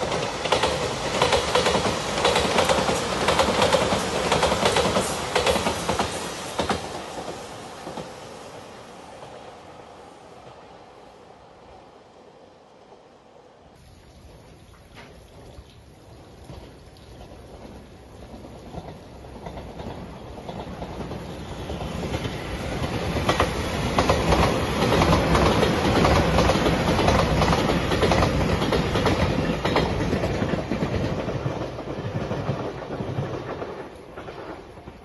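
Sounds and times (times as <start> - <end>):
wheels clacking over rail joints: 0.0 - 8.2, 16.4 - 35.0
electric train rumbling past: 0.0 - 14.6, 16.0 - 35.0.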